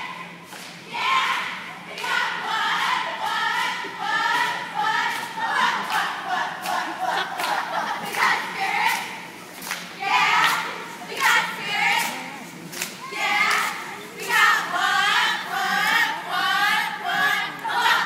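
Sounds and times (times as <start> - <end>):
sharp claps: 0.5 - 2.2, 2.8 - 6.8, 7.4 - 14.4
girls shouting a cheer: 0.9 - 5.2, 13.0 - 18.0.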